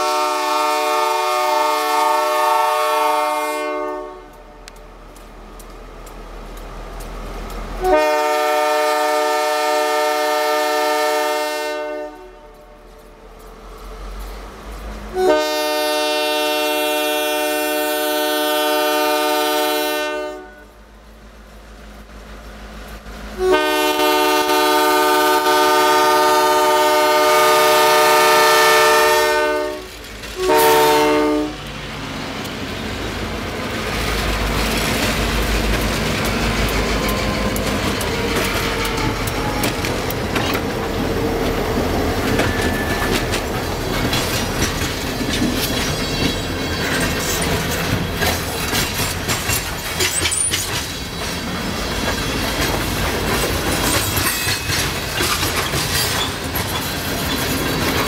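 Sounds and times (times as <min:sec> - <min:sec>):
locomotive air horn: 0:00.0 - 0:04.7, 0:07.8 - 0:12.9, 0:15.1 - 0:20.8, 0:23.4 - 0:31.7
train wheels on rails: 0:00.0 - 0:58.0
locomotive engine rumble: 0:18.6 - 0:58.0.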